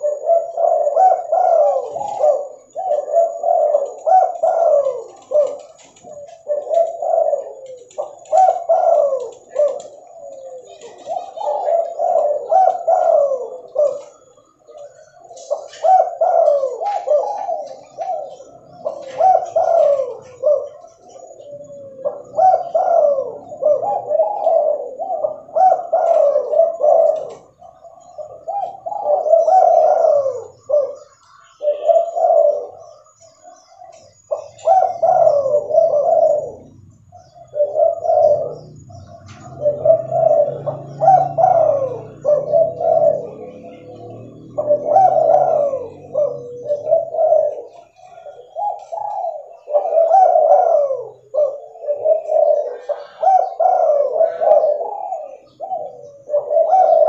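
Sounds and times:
dove cooing: 0.0s - 57.0s.

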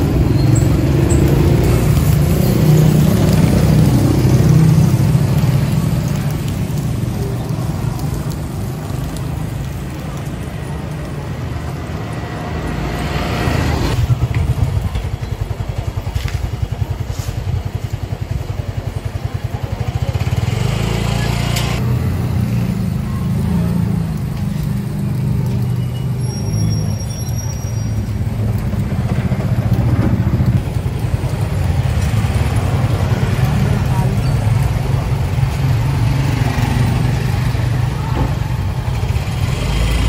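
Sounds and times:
motorcycle engines running: 0.0s - 26.7s, 27.4s - 40.0s.

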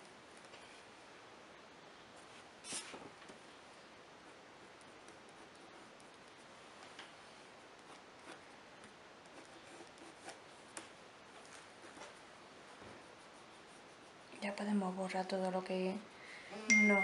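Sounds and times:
steady low hiss: 0.0s - 17.0s
pencil scratching on paper: 9.2s - 10.4s, 11.8s - 14.8s.

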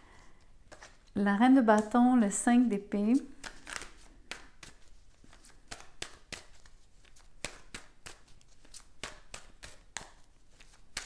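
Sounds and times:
cards being shuffled: 0.6s - 1.2s, 3.1s - 11.0s.

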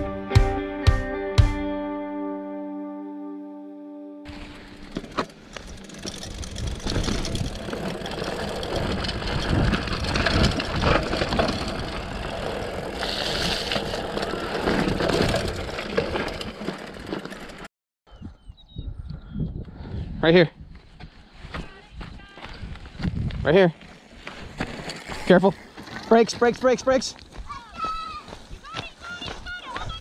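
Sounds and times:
bike tyre noise: 4.3s - 17.7s, 22.5s - 28.7s
bike knocks and rattles: 4.4s - 13.0s
wind noise on microphone: 6.2s - 7.8s, 8.6s - 14.0s, 18.1s - 23.6s.

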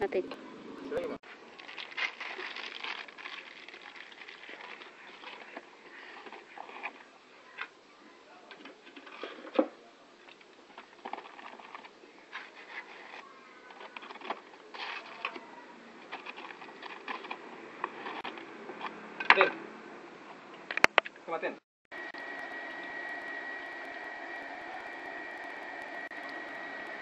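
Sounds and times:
plastic pouch crinkling: 1.5s - 5.6s
potting soil scratching: 11.1s - 15.4s.

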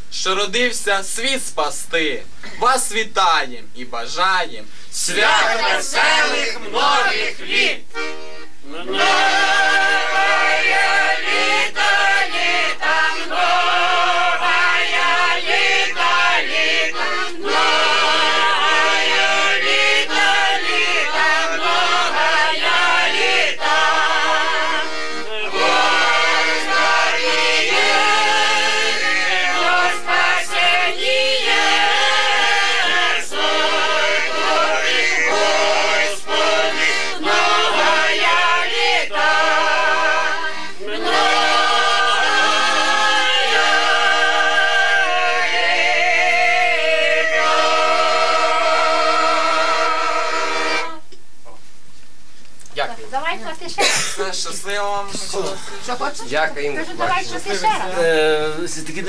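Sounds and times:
group singing a carol: 4.9s - 51.1s
accordion: 5.0s - 51.1s.

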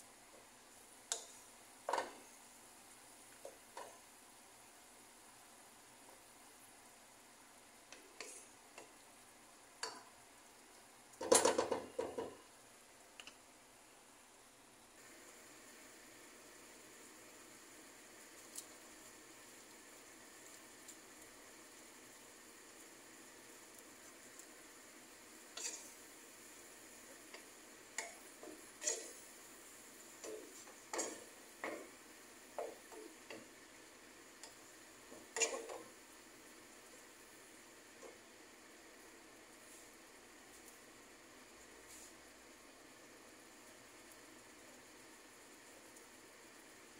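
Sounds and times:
small clicks: 13.2s - 13.4s
spatula scraping frying pan: 25.5s - 26.0s, 27.2s - 29.3s, 30.2s - 31.9s, 34.4s - 35.9s.

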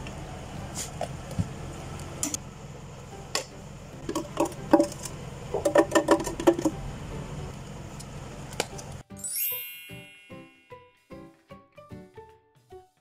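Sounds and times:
cups and utensils clinking: 4.0s - 6.7s.

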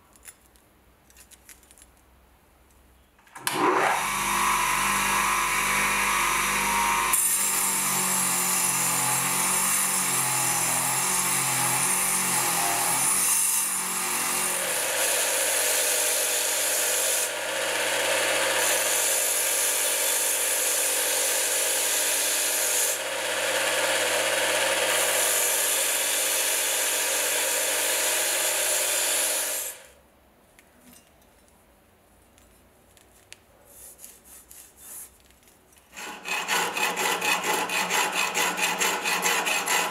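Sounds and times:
bench grinder grinding metal: 3.5s - 29.8s, 35.9s - 39.9s
belt grinder sanding: 4.0s - 29.8s, 35.9s - 39.9s.

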